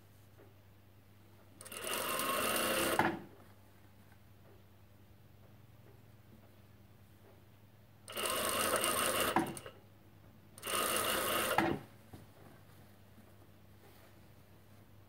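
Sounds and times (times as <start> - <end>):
sewing machine stitching: 1.6 - 3.3, 8.1 - 9.8, 10.6 - 11.9.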